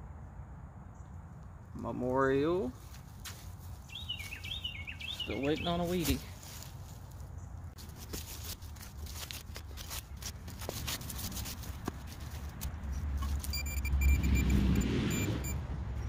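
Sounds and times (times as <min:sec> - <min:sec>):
shovel digging into soil: 0:07.8 - 0:13.7
high electronic beeps: 0:13.3 - 0:15.6
passing car rumbling: 0:13.6 - 0:16.0.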